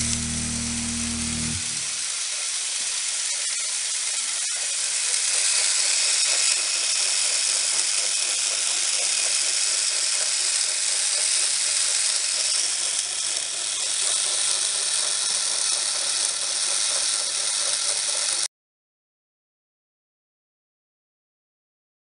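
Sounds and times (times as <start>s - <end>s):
toy train motors whirring: 0.0s - 18.5s.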